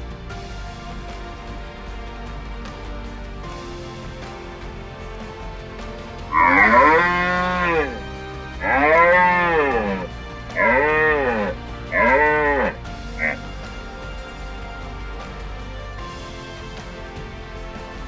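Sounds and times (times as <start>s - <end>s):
red deer stag roaring: 6.4s - 8.0s, 8.6s - 13.4s.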